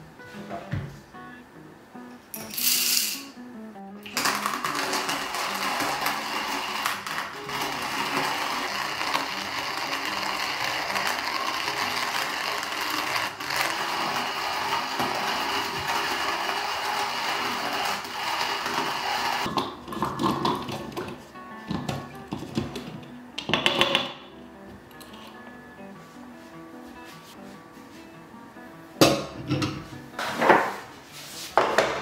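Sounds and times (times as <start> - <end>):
hand coffee mill grinding: 4.0 - 21.0.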